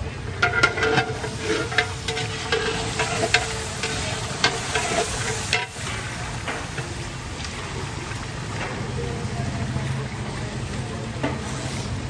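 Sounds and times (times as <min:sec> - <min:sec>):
steady noise: 0:00.0 - 0:10.0
metal ladle scraping cooking pot: 0:00.1 - 0:07.0.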